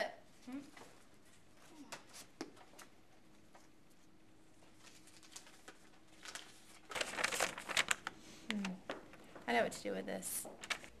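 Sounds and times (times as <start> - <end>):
faint steady hum: 0.0 - 11.0
paper crinkling: 3.5 - 9.1, 10.6 - 11.0.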